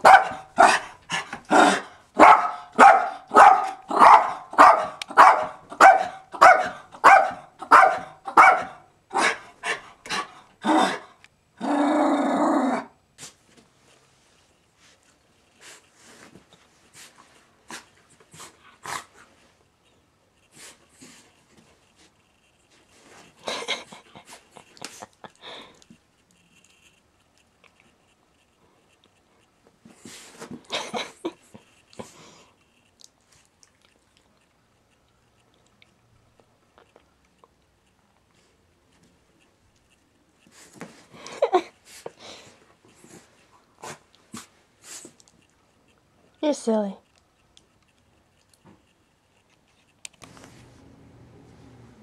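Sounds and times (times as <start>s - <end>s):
dog barking: 0.0s - 0.9s, 1.6s - 9.4s
drawn-out sound: 50.1s - 52.0s.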